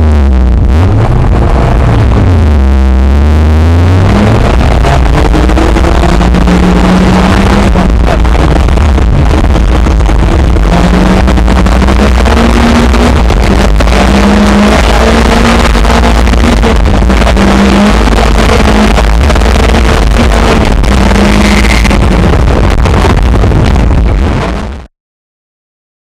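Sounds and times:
car engine pulling hard: 0.0 - 24.8
road and wind rumble: 0.0 - 24.9.

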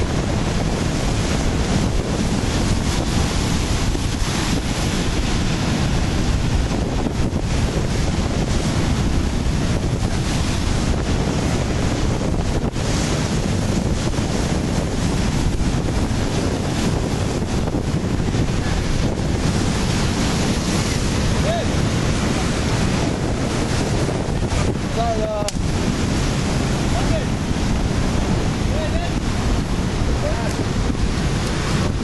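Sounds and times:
surf breaking over rocks: 0.0 - 32.0
wind buffeting microphone: 0.0 - 32.0.

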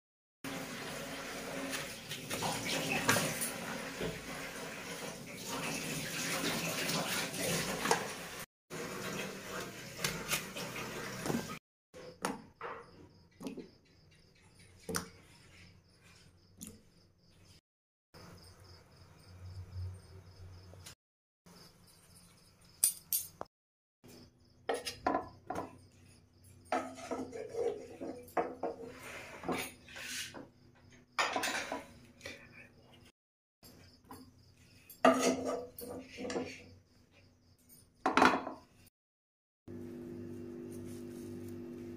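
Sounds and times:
metal spoon scraping a pan: 26.7 - 30.5, 35.0 - 36.7.

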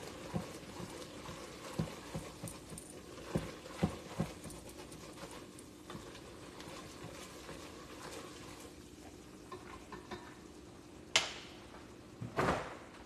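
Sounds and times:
whisk scraping a metal pot: 0.0 - 8.8.

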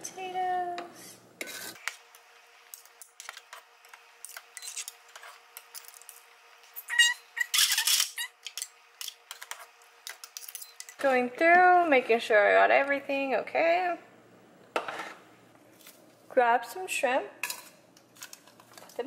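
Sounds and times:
short squeak: 6.9 - 8.3.

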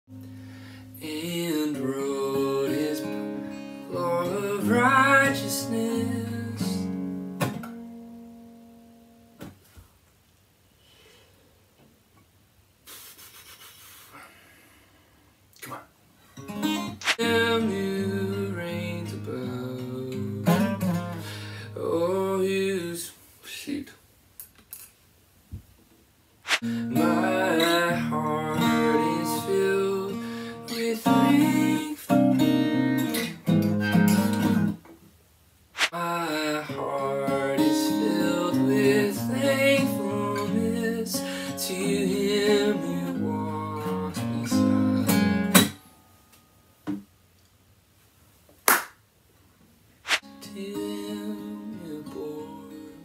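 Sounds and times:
acoustic guitar strumming: 0.2 - 9.4, 16.4 - 22.2, 26.6 - 34.8, 36.7 - 45.8
man singing: 1.0 - 7.0, 17.0 - 23.8, 26.6 - 34.6, 35.9 - 45.5, 50.4 - 53.0.

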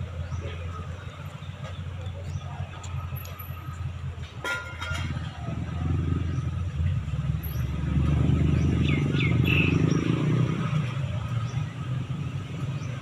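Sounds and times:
street traffic rumble: 0.0 - 13.0
vehicle engine passing: 5.1 - 13.0.

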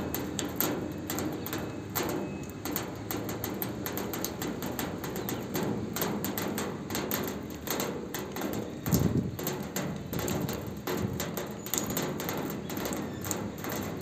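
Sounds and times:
rain on a metal roof: 0.0 - 14.0.

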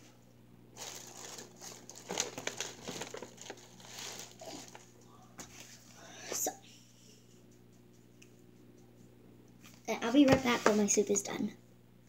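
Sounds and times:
crinkly material rustling: 0.8 - 5.8.

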